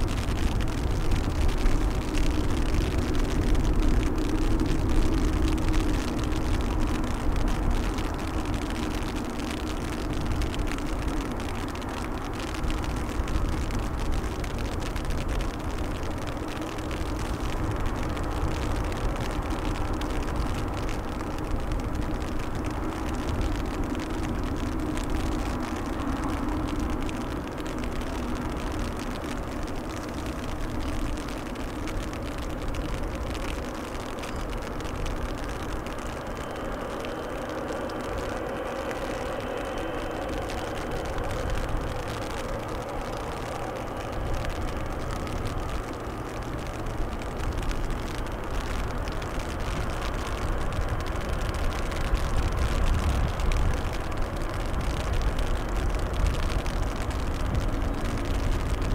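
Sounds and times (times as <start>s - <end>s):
jet engines whining: 35.6s - 45.8s.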